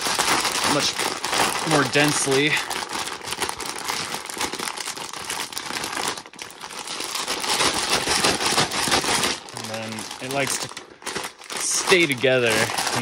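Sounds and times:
grains rustling: 0.0s - 2.7s, 9.4s - 10.6s, 11.3s - 13.0s
plastic bag crinkling: 0.0s - 13.0s.

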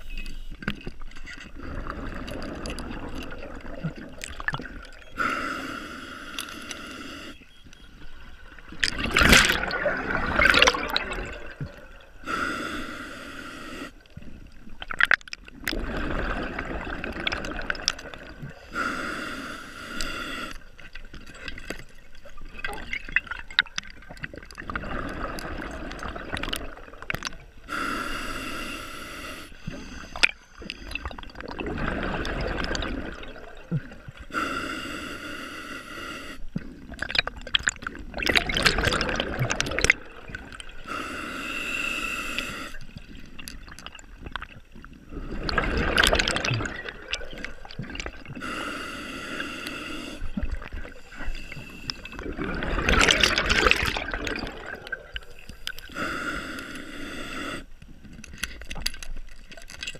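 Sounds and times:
regulator hissing inhale: 5.1s - 7.4s, 12.2s - 14.1s, 18.6s - 20.7s, 27.7s - 31.1s, 34.2s - 36.5s, 40.8s - 42.9s, 48.4s - 52.3s, 55.2s - 57.8s
gurgling exhaust bubbles: 8.8s - 11.8s, 52.2s - 55.2s.

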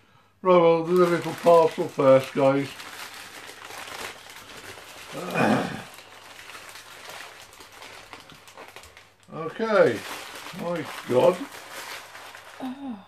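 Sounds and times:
paper wrapping rustling: 0.6s - 13.0s
low grunt: 5.1s - 5.9s.

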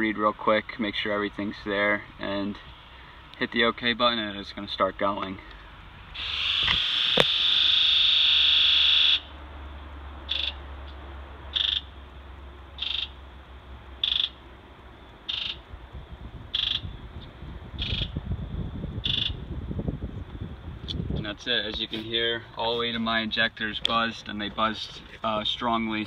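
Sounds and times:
fuel injectors buzzing: 5.5s - 9.3s.

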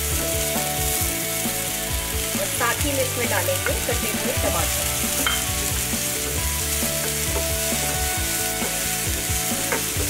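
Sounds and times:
vegetables sizzling in oil: 0.0s - 10.0s.

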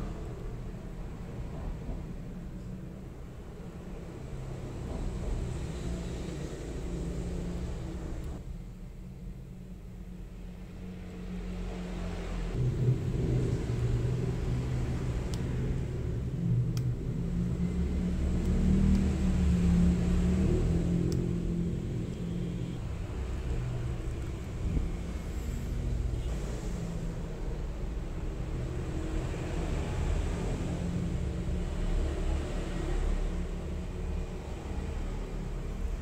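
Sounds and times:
low rumble: 12.6s - 18.6s.

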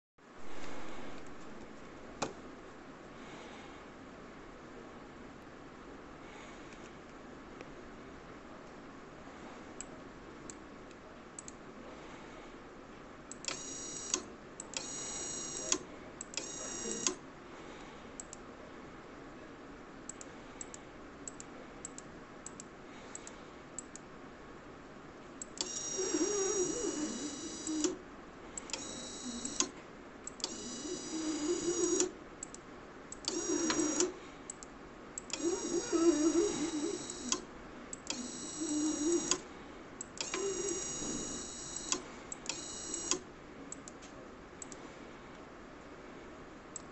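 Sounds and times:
computer mouse clicks: 9.8s - 11.6s, 18.2s - 18.4s, 20.1s - 24.1s, 28.6s - 39.4s, 40.0s - 45.4s
small electric motor whining: 25.6s - 28.0s, 28.8s - 29.7s, 30.5s - 32.1s, 33.3s - 34.1s, 35.4s - 37.4s, 38.1s - 39.4s, 40.2s - 41.9s.

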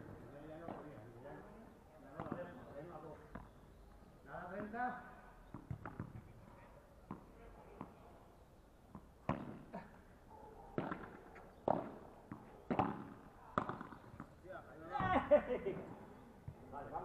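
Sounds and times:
ball struck by rackets: 2.1s - 2.5s, 5.5s - 6.3s, 8.9s - 9.7s, 10.8s - 14.4s
ball bouncing on turf: 2.1s - 2.6s, 4.4s - 4.8s, 5.4s - 6.3s, 7.0s - 8.0s, 8.9s - 9.6s, 10.8s - 15.2s.

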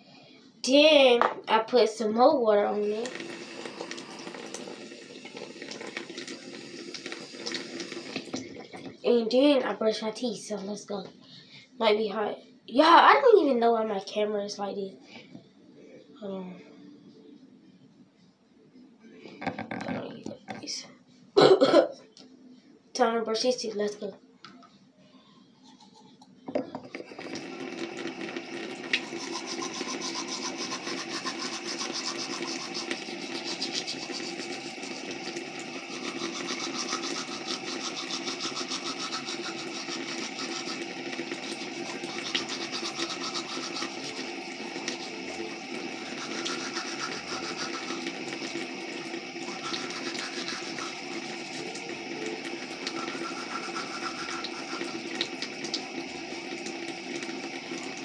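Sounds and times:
electric toothbrush buzzing: 2.7s - 8.4s, 27.0s - 58.0s.

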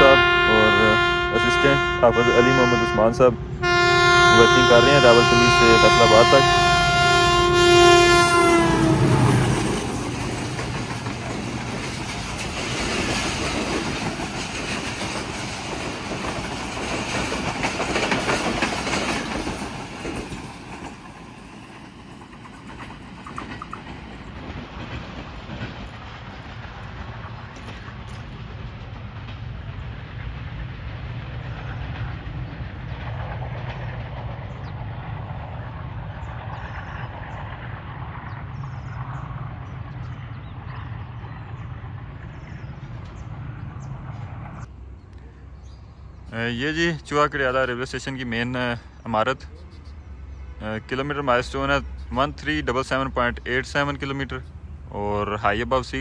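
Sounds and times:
diesel locomotive running: 0.0s - 56.0s
train wheels clattering over rail joints: 8.9s - 40.7s.

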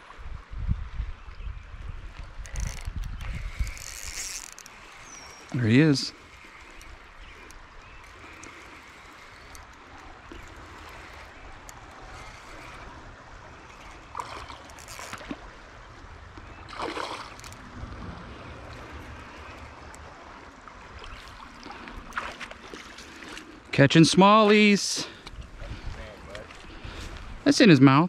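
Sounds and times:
fish splashing: 3.5s - 15.8s, 16.5s - 23.6s
river water rushing: 3.7s - 24.8s.

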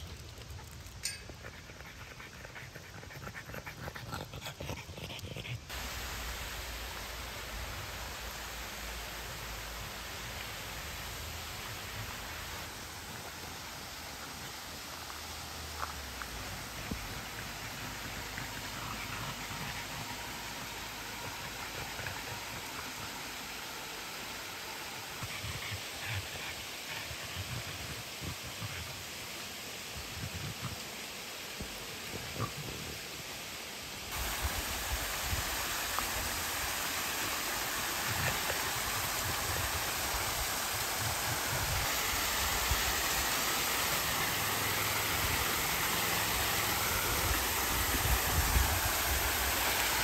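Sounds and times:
dog panting: 1.3s - 5.7s, 16.8s - 23.3s, 25.1s - 29.0s
small waterfall rushing: 5.6s - 50.0s.

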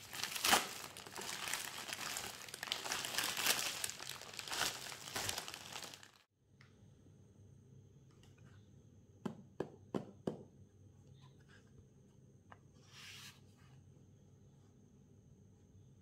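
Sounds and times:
packaging rustling: 0.0s - 6.3s.

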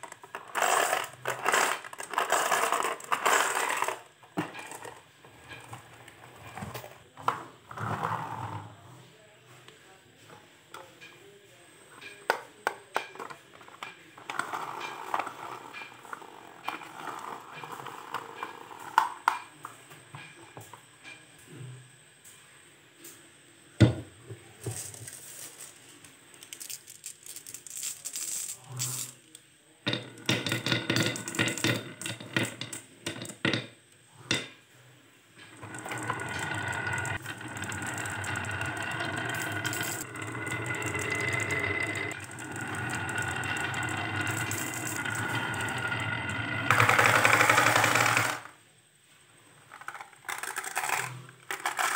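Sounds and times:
marbles clattering into plastic: 0.0s - 5.0s, 24.6s - 29.3s, 29.9s - 33.7s, 35.5s - 48.5s, 49.7s - 51.9s
marbles rolling down wooden groove: 0.0s - 5.0s, 14.2s - 19.3s, 29.9s - 33.6s, 35.5s - 48.5s, 49.7s - 51.9s
marbles clicking together: 35.6s - 48.4s
plastic toy parts clicking: 49.7s - 51.9s.

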